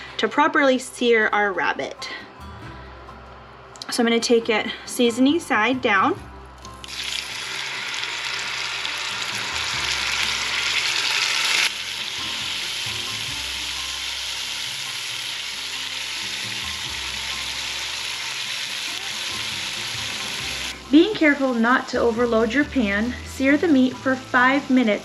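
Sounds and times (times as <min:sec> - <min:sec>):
meat sizzling in hot oil: 0:06.8 - 0:25.0.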